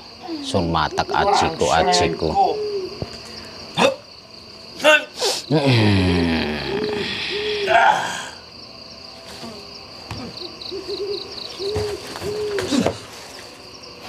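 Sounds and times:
owl hooting: 0.2 - 4.1, 6.5 - 8.4, 9.4 - 13.3
person groaning: 5.5 - 8.4.

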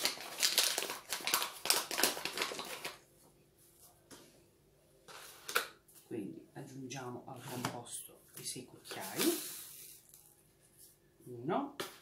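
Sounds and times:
paper bag crinkling and rustling: 0.0 - 3.0.

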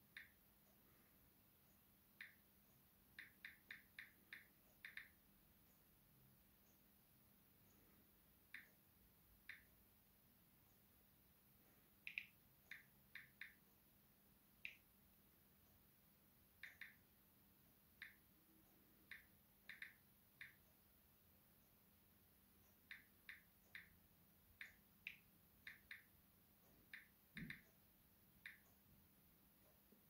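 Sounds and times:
low hiss: 0.0 - 30.0
phone keyboard tapping clicks: 12.0 - 13.6, 26.8 - 27.8.

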